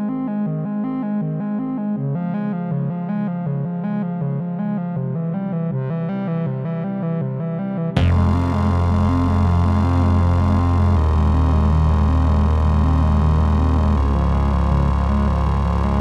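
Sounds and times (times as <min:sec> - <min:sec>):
steady bass line: 0:07.9 - 0:16.0
synthesizer keyboard pattern: 0:08.0 - 0:16.0.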